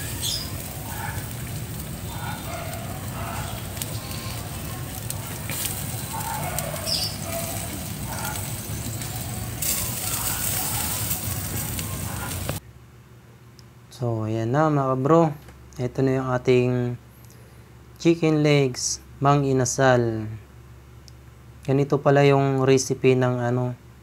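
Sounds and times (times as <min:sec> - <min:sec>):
charcoal crackling: 0:00.0 - 0:12.6
chicken sizzling on a grill: 0:00.0 - 0:12.6.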